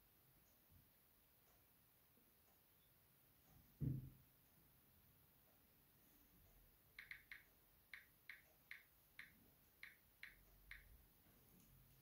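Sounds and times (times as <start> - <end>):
typing on smartphone keyboard: 6.9 - 11.0.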